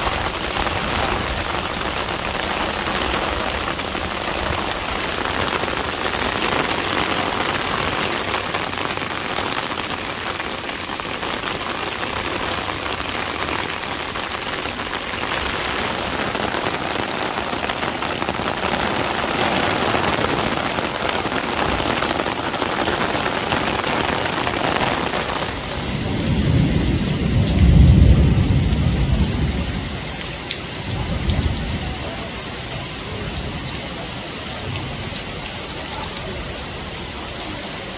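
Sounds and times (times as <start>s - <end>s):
heavy rain on pavement: 0.0s - 37.9s
low rumble of thunder: 25.6s - 30.2s.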